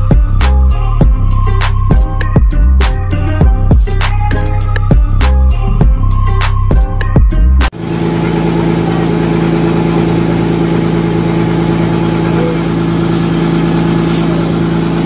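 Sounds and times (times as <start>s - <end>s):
background music with drum hits: 0.0s - 7.8s
motor boat engine droning: 7.8s - 15.0s.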